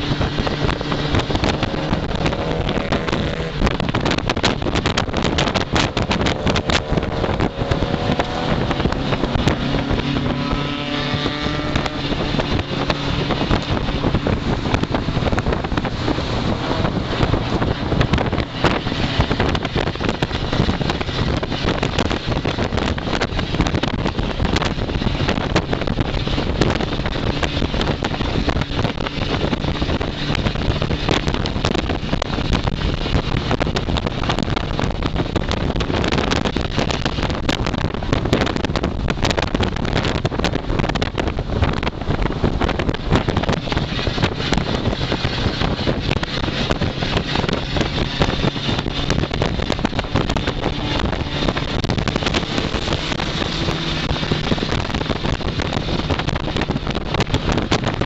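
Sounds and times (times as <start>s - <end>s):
race car engine roaring: 0.0s - 58.0s
wind buffeting the microphone: 0.0s - 58.0s.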